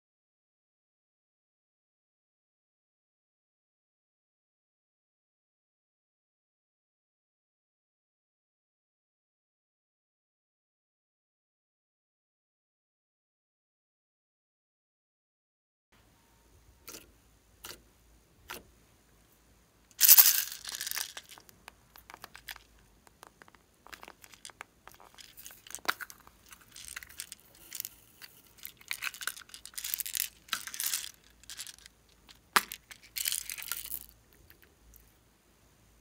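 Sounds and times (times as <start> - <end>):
plastic containers opening: 20.0 - 34.0
beads rattling onto slime: 20.0 - 34.1.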